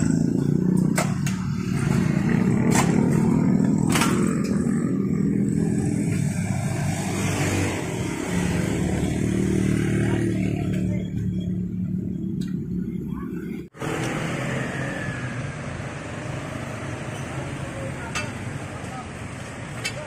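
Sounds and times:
motorcycle engine running: 0.0 - 19.4.

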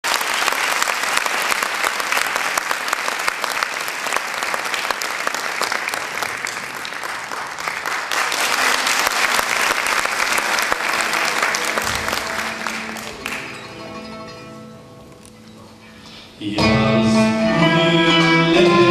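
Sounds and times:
audience applauding: 0.0 - 14.5.

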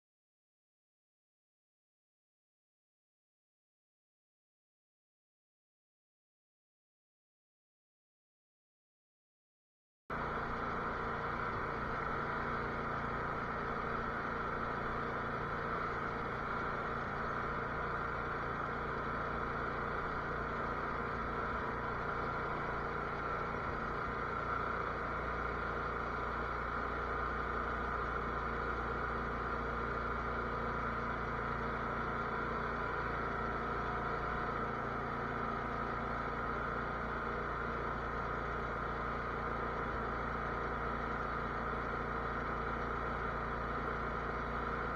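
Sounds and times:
garden tractor engine running: 10.1 - 44.9.

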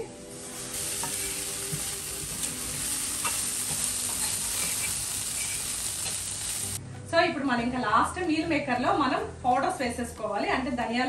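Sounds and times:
soya chunks sizzling in a pan: 0.0 - 6.8.

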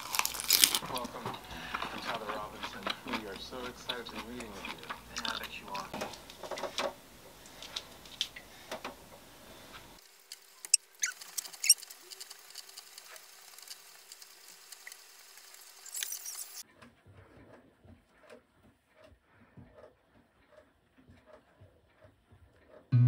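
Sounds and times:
exercise bike hum: 5.0 - 15.9
squeaks and clicks: 10.6 - 12.3, 15.8 - 19.1.

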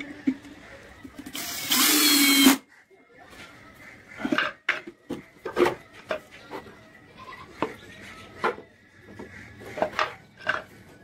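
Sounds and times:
cordless drill driving screw: 1.3 - 2.6.

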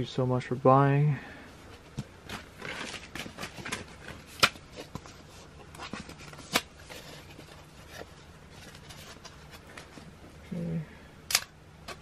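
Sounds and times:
packaging rustling: 1.8 - 10.1.

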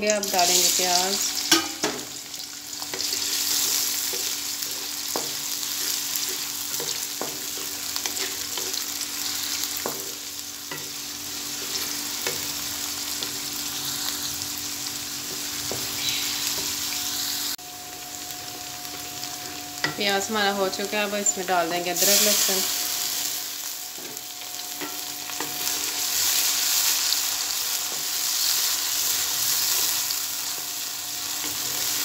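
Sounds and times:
onions sizzling in oil: 0.0 - 32.0.

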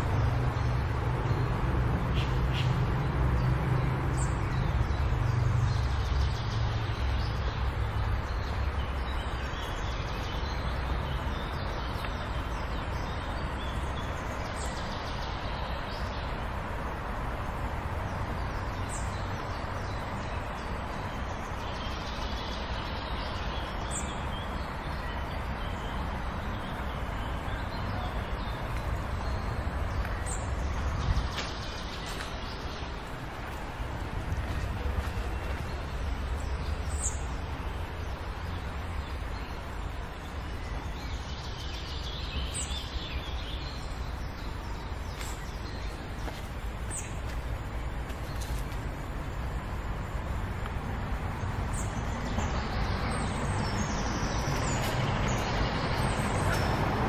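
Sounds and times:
birds calling: 0.0 - 17.4
distant city traffic rumble: 0.0 - 57.0.

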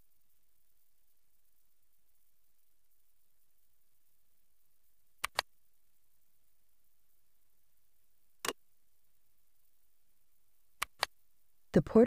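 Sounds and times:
computer mouse clicks: 5.2 - 5.5, 10.8 - 11.2.

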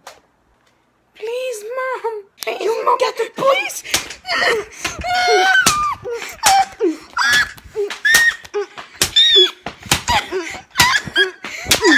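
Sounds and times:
child yelping: 3.4 - 11.9
sharp smacks: 3.9 - 4.2, 4.8 - 10.2.

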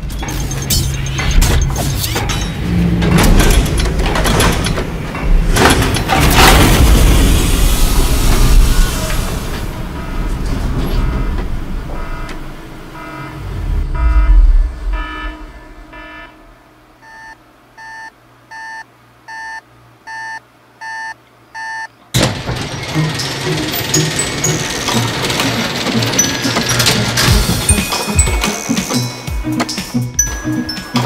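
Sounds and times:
low mechanical rumble: 0.1 - 17.8
sudden sharp hit: 6.4 - 16.8
electronic beeping: 12.9 - 21.9.

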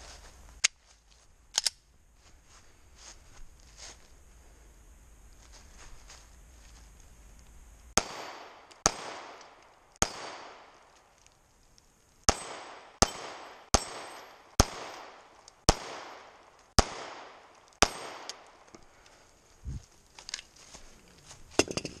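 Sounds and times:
pistol shots with echo: 8.0 - 10.8, 12.3 - 18.6.

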